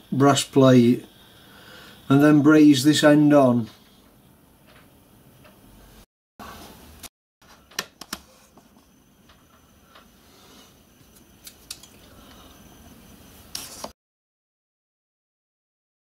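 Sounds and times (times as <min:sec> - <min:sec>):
faint room hiss: 0:00.0 - 0:07.1.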